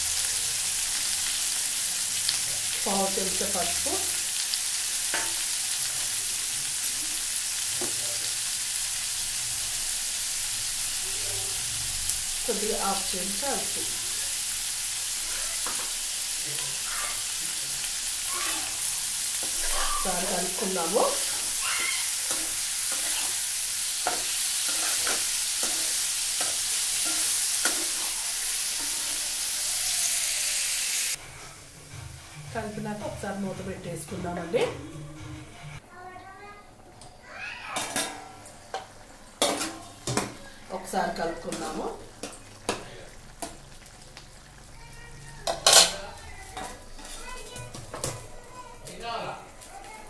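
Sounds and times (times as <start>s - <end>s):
food sizzling in frying pan: 0.0s - 50.0s
spatula scraping and knocking pan: 19.4s - 29.3s.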